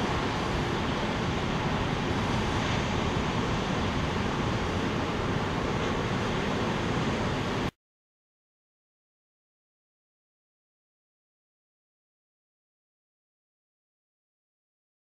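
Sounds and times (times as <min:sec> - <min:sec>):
surf washing against rocks: 0:00.0 - 0:07.7
wind on microphone: 0:00.0 - 0:07.7.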